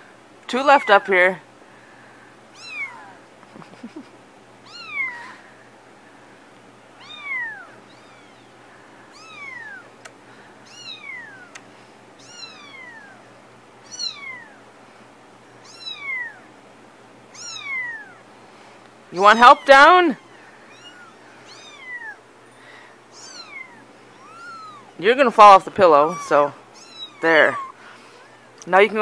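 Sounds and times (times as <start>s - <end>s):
kitten mewing: 2.5s - 3.2s, 3.8s - 5.4s, 7.0s - 8.5s, 9.1s - 10.0s, 10.7s - 11.6s, 12.2s - 14.6s, 15.6s - 16.5s, 17.3s - 18.2s, 19.2s - 25.0s, 25.8s - 28.6s.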